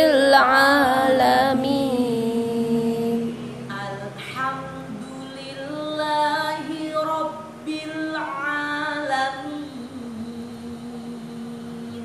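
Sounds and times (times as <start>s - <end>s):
person reciting melodically: 0.0s - 12.0s.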